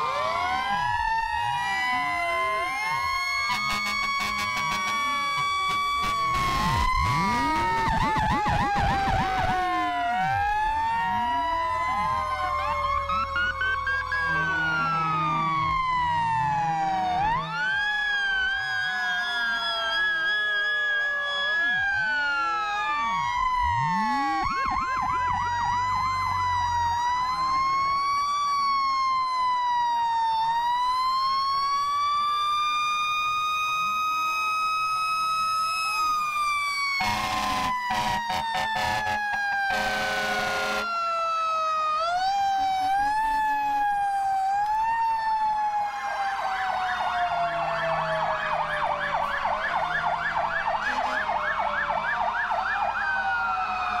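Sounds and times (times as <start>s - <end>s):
fire truck sirens wailing: 0.0s - 54.0s
horn blasts: 3.5s - 5.2s, 37.0s - 40.9s.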